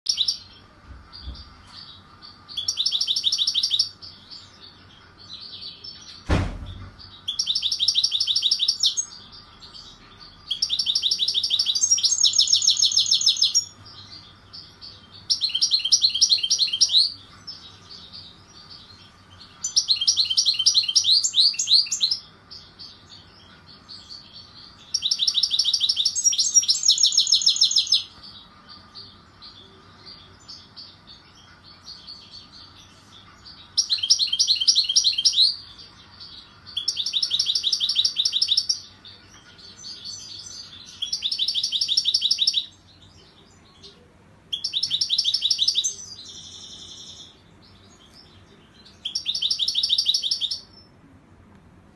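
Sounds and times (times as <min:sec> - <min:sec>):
soft bird twittering: 0:00.0 - 0:51.0
goldfinch trilling song: 0:02.2 - 0:04.8, 0:07.0 - 0:32.8, 0:33.4 - 0:39.2, 0:39.8 - 0:43.9, 0:44.5 - 0:50.9
sharp knock: 0:06.2 - 0:07.0.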